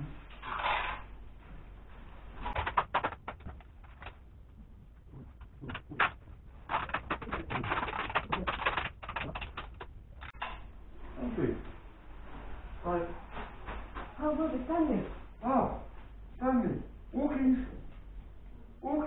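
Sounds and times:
plastic bags crinkling: 2.5 - 10.3.

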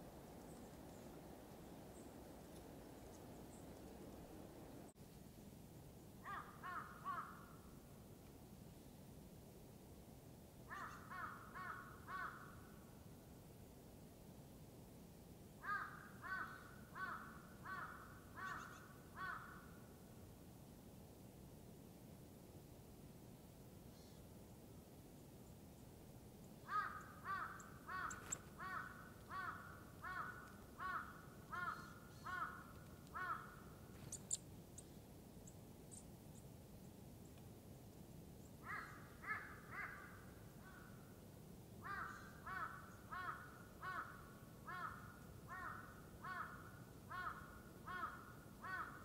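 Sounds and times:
small bird chirping: 0.3 - 5.0, 26.4 - 28.6, 33.9 - 37.4
crow cawing: 6.2 - 7.6, 10.7 - 12.6, 15.6 - 19.8, 26.7 - 33.7, 38.6 - 40.9, 41.8 - 49.0.

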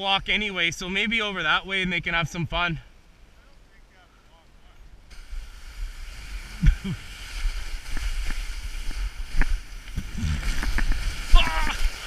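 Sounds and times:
skis hissing over snow: 5.1 - 12.0.

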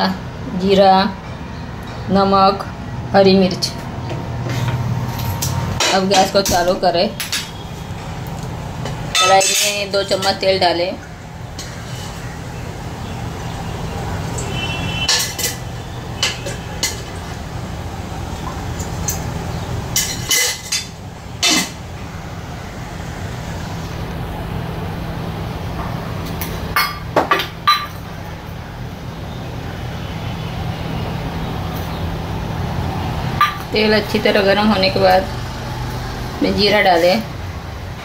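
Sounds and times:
metal utensils and pans clinking: 4.5 - 7.6, 8.9 - 10.6, 14.4 - 17.4, 19.9 - 21.8.

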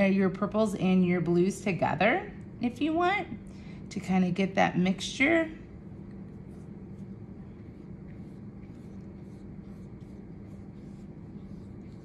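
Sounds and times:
steady low hum: 0.0 - 12.0
brush strokes on paper: 6.0 - 12.0.

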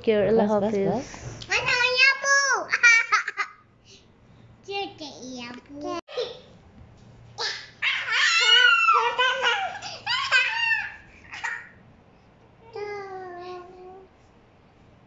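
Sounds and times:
small children laughing and squealing: 7.4 - 11.8.

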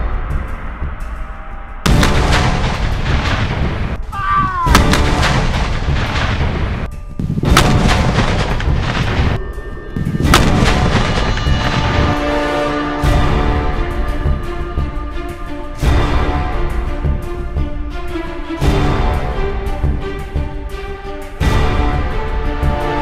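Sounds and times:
cannon booms with rolling echo: 1.8 - 4.0, 4.7 - 9.4.

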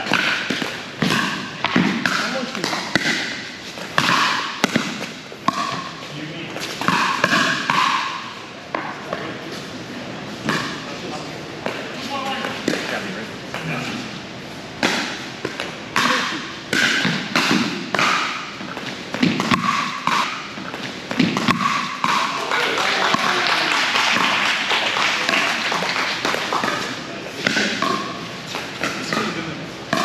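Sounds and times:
paddles hitting pickleball: 0.0 - 6.0, 6.6 - 9.3, 10.4 - 10.9, 11.6 - 14.1, 14.8 - 30.0
crowd voices: 22.0 - 30.0.

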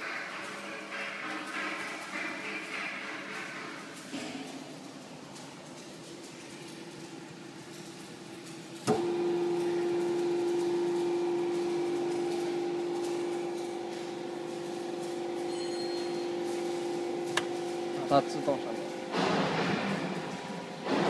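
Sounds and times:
pump motor humming: 8.8 - 19.4.

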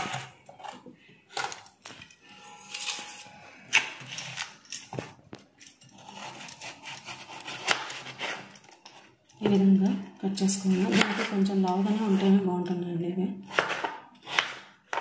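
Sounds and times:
knife cutting potatoes: 6.0 - 8.5, 10.5 - 12.4, 13.4 - 15.0.

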